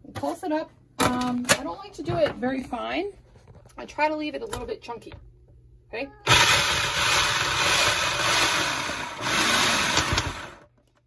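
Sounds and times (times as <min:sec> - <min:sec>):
food processor chopping: 0:06.3 - 0:10.7.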